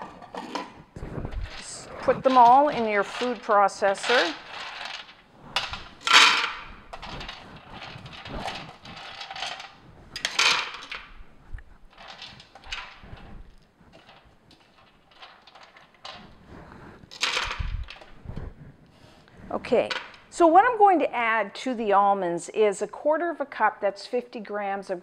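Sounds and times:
almonds clattering into plastic bowl: 1.5 - 11.1, 11.9 - 13.0.

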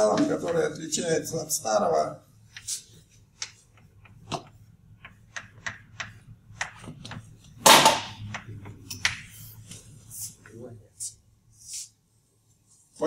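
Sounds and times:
chalk tapping on chalkboard: 2.5 - 7.3.

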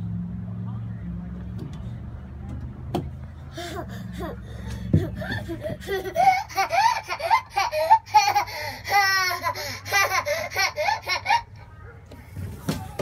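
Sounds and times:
toddler laughing and squealing: 3.6 - 11.6.

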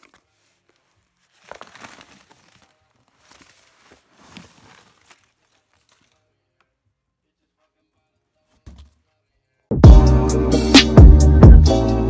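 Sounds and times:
paper rustling and crinkling: 0.0 - 6.8.

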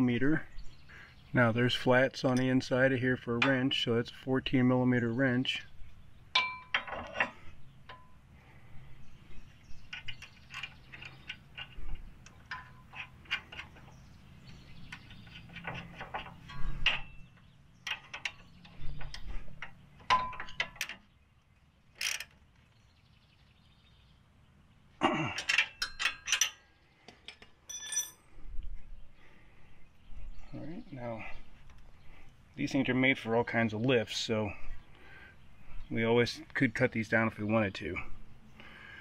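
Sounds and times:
wrench clinking on metal: 6.3 - 8.2, 9.9 - 13.9, 14.9 - 21.0, 25.3 - 28.3.

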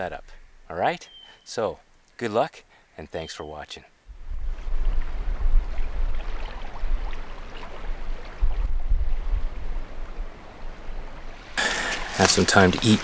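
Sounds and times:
wind on microphone: 4.1 - 12.1
river water rushing: 10.3 - 13.0.

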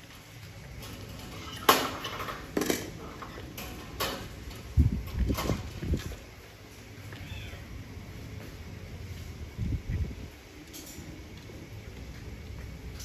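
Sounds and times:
wire cage clinking: 0.7 - 6.2.

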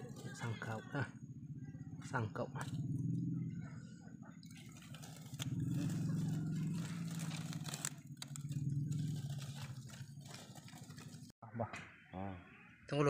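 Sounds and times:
rustling of dry leaves and soil: 0.0 - 1.0, 4.4 - 11.3
low fluttering drone: 0.0 - 11.4.

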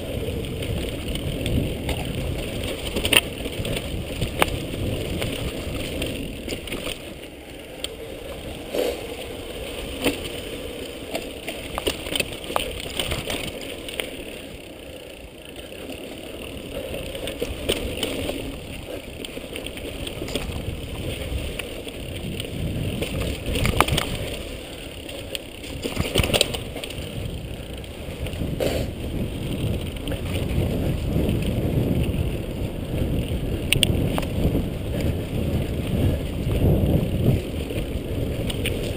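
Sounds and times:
bike rattling over bumps: 0.0 - 38.9
bike tyres rumbling on dirt trail: 0.0 - 38.9.

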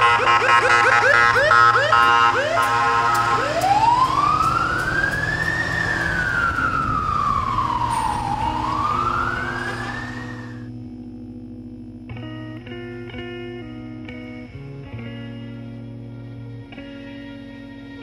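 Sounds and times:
emergency siren yelping and wailing: 0.0 - 10.7.

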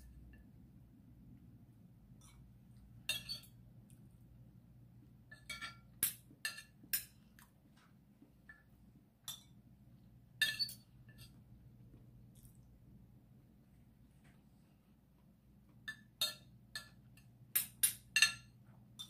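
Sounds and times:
cutlery clinking on ceramic plate: 3.1 - 3.6, 5.3 - 7.2, 9.2 - 9.6, 10.4 - 11.4, 15.9 - 18.6.

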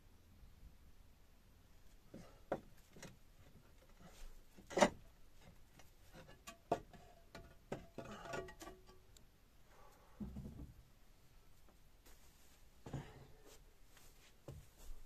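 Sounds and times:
roof tiles knocking and scraping: 2.1 - 9.1.

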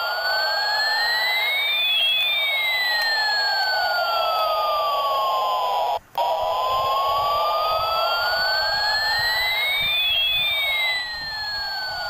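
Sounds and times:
electronic siren-like sweeping tone: 0.0 - 12.0
higher gliding tone: 0.0 - 12.0
steady hiss: 0.0 - 12.0.

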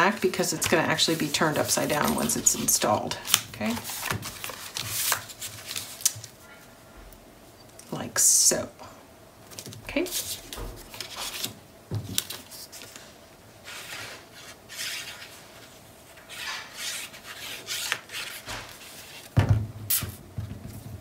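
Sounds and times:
paper rubbing and rustling: 0.1 - 6.4, 10.0 - 19.4.

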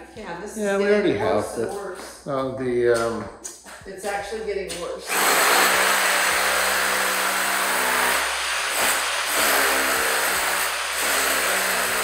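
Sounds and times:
power tool cutting concrete: 5.1 - 12.0.

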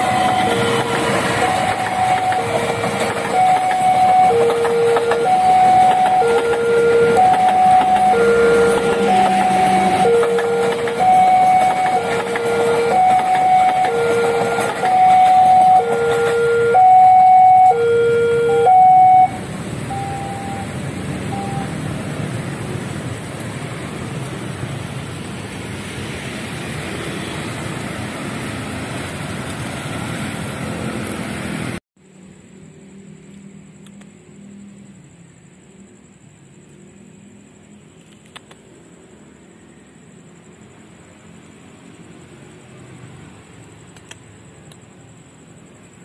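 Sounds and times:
level crossing alarm two tones: 0.0 - 20.7, 21.3 - 21.7
road traffic noise: 0.0 - 46.0.

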